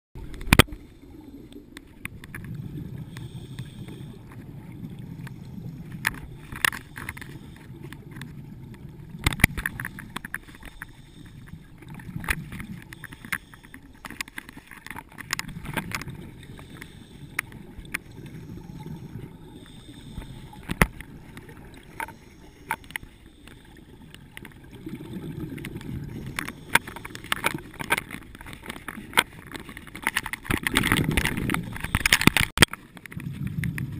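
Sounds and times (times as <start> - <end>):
underwater bubbles rumbling: 0.2 - 13.2, 14.9 - 23.0, 23.6 - 33.9
sharp clicks and knocks: 5.2 - 11.2, 25.6 - 33.9.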